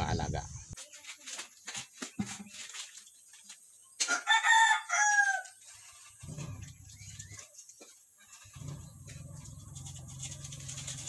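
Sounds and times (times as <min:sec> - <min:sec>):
rooster crowing: 0:04.1 - 0:05.6.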